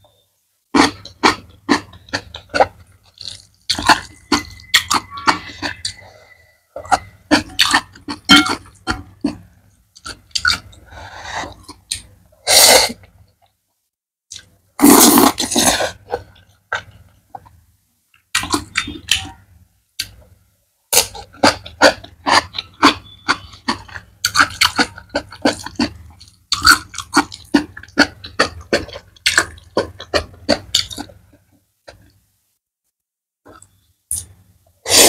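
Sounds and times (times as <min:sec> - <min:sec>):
wet chewing with mouth clicks: 0:00.8 - 0:06.1, 0:21.0 - 0:32.2
slurping noodles: 0:12.4 - 0:13.0, 0:14.8 - 0:16.2.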